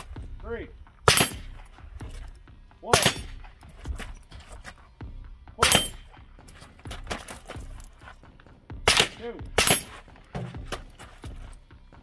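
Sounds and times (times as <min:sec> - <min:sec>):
rifle shots: 0:01.0 - 0:01.6, 0:08.8 - 0:10.0.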